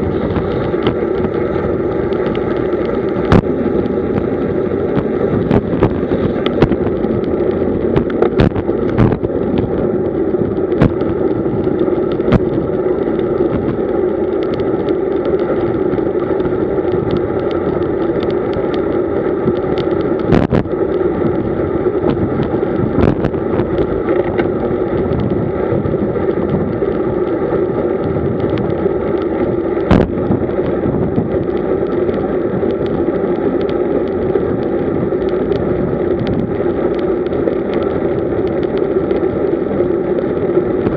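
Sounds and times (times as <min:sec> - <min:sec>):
wind and road noise: 0:00.0 - 0:40.9
sharp clicks and knocks: 0:02.0 - 0:15.7, 0:28.4 - 0:33.0.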